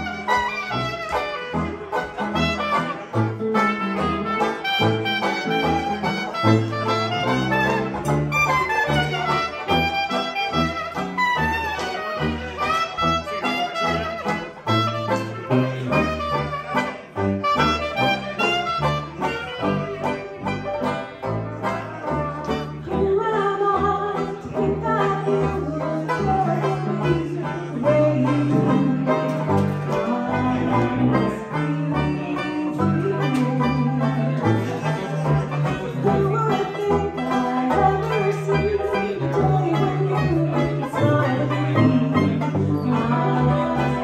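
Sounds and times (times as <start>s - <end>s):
trumpet: 0.0s - 22.9s, 24.8s - 44.0s
saxophone: 0.0s - 23.1s, 23.7s - 44.0s
brass bass line: 0.0s - 44.0s
strummed banjo: 0.0s - 44.0s
woman singing: 22.9s - 29.4s, 30.0s - 34.2s, 36.2s - 44.0s.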